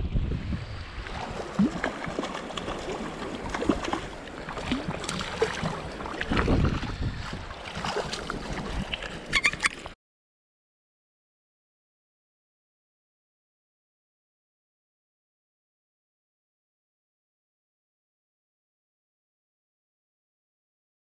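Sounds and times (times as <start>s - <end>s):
wind on microphone: 0.0s - 10.0s
sea water lapping and splashing: 0.1s - 10.0s.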